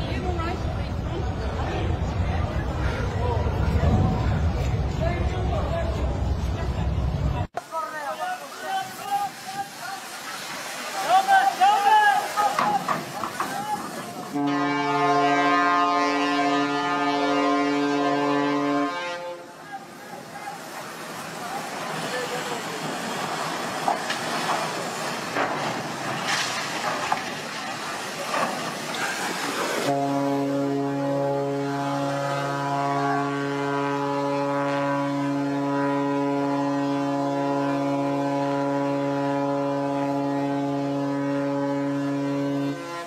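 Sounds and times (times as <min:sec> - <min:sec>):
ship's horn blast: 0:14.3 - 0:20.0, 0:29.8 - 0:43.0.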